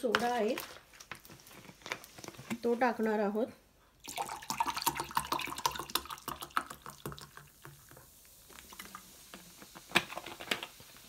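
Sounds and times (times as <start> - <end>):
water pouring into glass: 4.0 - 7.7
carbonated drink fizzing: 4.0 - 11.0.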